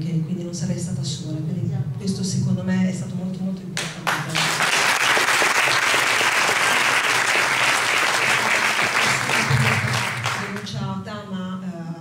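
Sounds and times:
audience applauding: 0:04.0 - 0:10.7.

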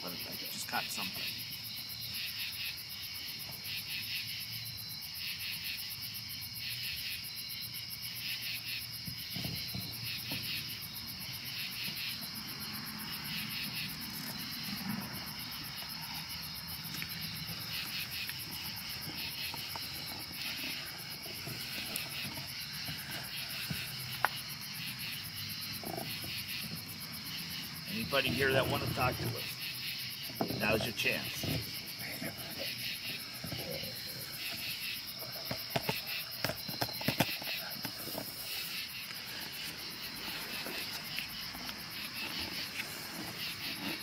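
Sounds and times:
crickets trilling: 0:00.0 - 0:44.0.

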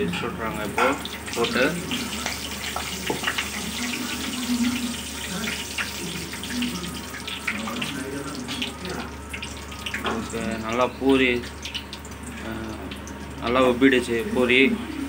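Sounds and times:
oil sizzling and crackling: 0:00.0 - 0:15.0.

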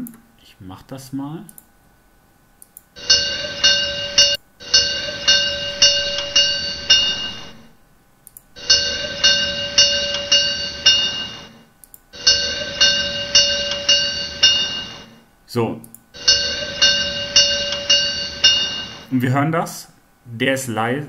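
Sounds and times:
bell ringing: 0:03.0 - 0:07.8, 0:08.6 - 0:15.3, 0:16.2 - 0:19.1.

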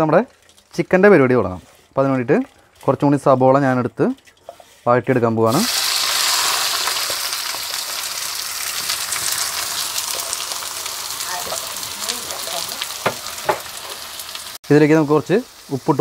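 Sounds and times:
onions sizzling in hot oil: 0:05.5 - 0:16.0.

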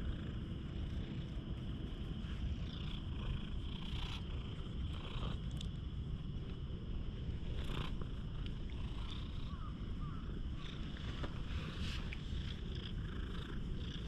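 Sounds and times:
cat purring: 0:00.0 - 0:14.0
hand brushing fur: 0:11.1 - 0:12.3.

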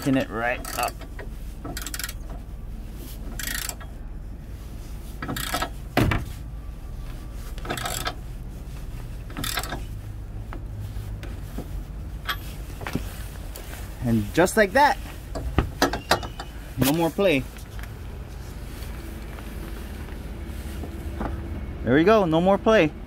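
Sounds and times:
ratchet clicking: 0:00.6 - 0:02.4, 0:03.4 - 0:03.9, 0:05.2 - 0:05.8, 0:07.6 - 0:08.2, 0:09.4 - 0:09.8.

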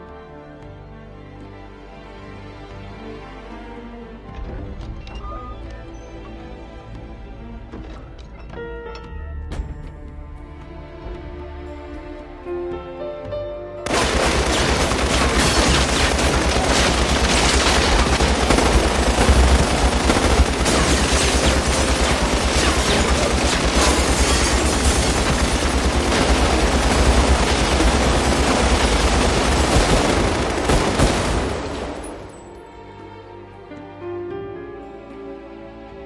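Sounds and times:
submachine guns firing bursts: 0:13.9 - 0:32.2.

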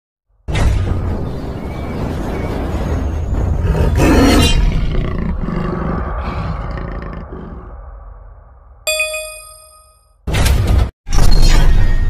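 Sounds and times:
big cat roaring: 0:03.6 - 0:08.0.

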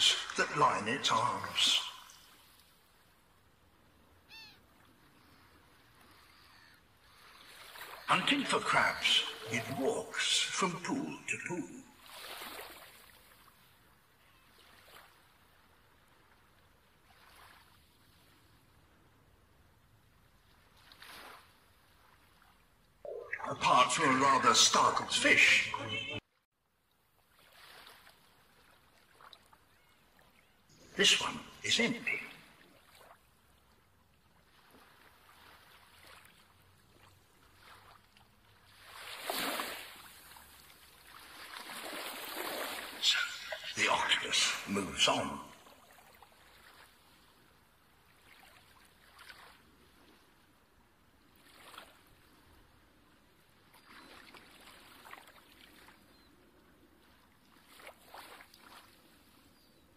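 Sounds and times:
water lapping and sloshing: 0:00.0 - 0:23.2, 0:26.7 - 0:31.6, 0:32.2 - 0:59.9.

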